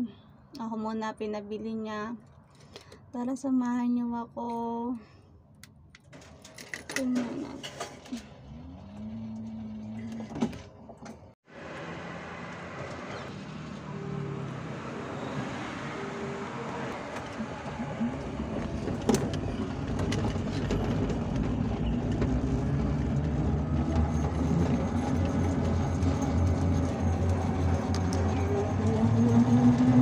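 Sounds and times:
road rumble: 0:00.0 - 0:30.0
scooter motor hum: 0:11.6 - 0:30.0.

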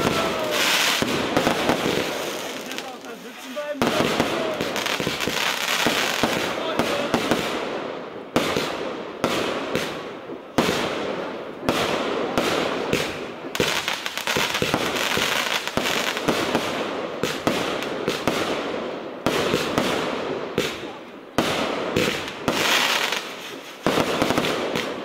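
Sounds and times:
firework fizzing crackle: 0:00.0 - 0:07.5, 0:19.3 - 0:25.0
firework bangs: 0:00.0 - 0:25.0.

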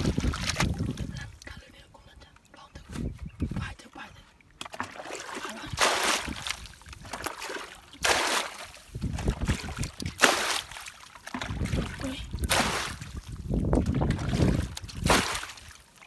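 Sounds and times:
water poured from bucket splashing: 0:04.7 - 0:13.2, 0:13.8 - 0:15.8.

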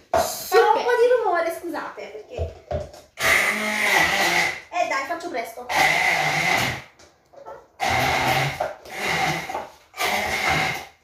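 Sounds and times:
immersion blender motor whine: 0:03.2 - 0:04.6, 0:05.7 - 0:06.9, 0:07.8 - 0:11.0.

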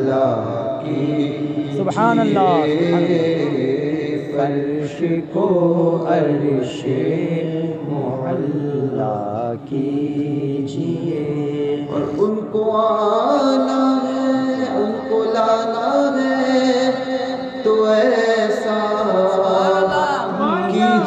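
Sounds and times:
person singing devotional song: 0:00.0 - 0:21.0.

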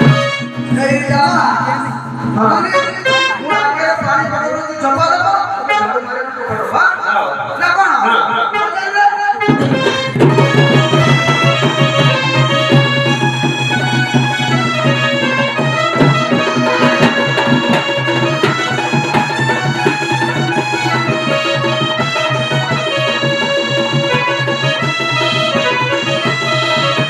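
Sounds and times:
barrel drums beating: 0:00.0 - 0:03.3, 0:09.4 - 0:27.0
reedy held melody: 0:00.0 - 0:06.4, 0:08.3 - 0:27.0.

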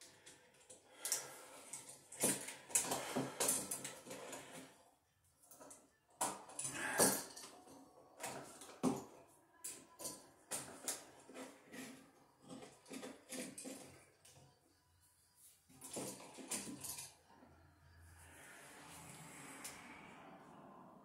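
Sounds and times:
scraping and rustling: 0:09.8 - 0:14.4.

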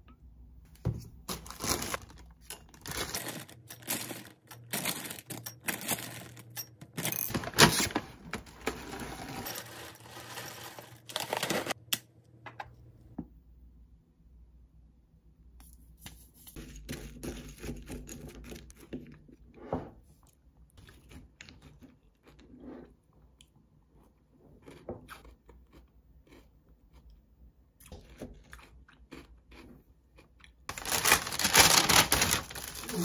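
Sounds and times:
crunchy cereal being chewed: 0:24.6 - 0:27.2, 0:27.8 - 0:33.0.

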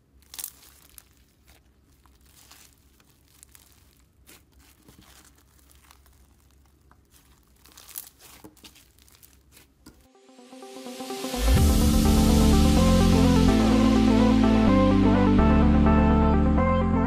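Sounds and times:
slime crackling and popping: 0:00.0 - 0:10.1
electronic music: 0:10.1 - 0:17.0.

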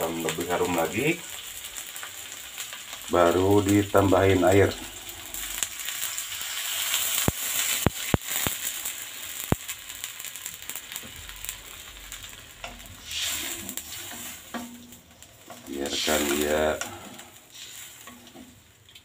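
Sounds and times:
water sizzling in hot wok: 0:00.0 - 0:19.0
wooden spatula stirring wok: 0:04.6 - 0:19.0
sharp pops: 0:07.2 - 0:08.8, 0:09.4 - 0:09.8.

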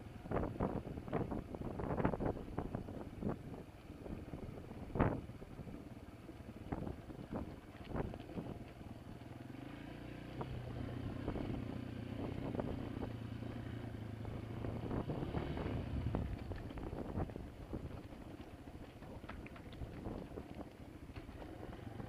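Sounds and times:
motorbike engine running: 0:00.0 - 0:22.0
knocks and clatters: 0:16.1 - 0:22.0.

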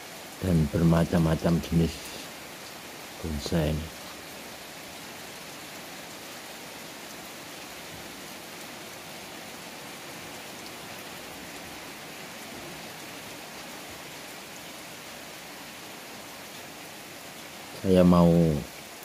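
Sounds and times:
steady rain on plants and paving: 0:00.0 - 0:19.0.

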